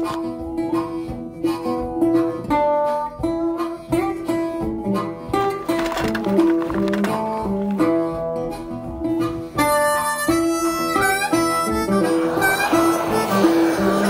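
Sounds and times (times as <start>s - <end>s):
guitar: 0.0s - 14.0s
harmonica playing held notes: 9.5s - 14.0s.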